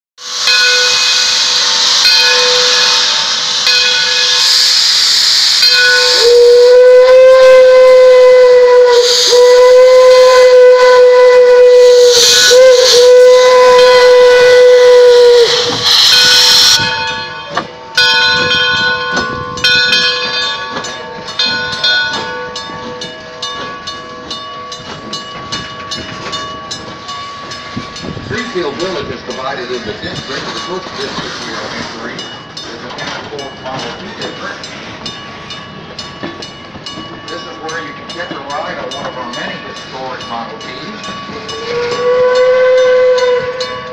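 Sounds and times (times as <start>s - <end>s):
steam whistle blowing: 0.2s - 18.8s, 41.4s - 43.9s
steam locomotive hissing: 0.2s - 43.9s
train wheels clicking: 11.7s - 43.9s.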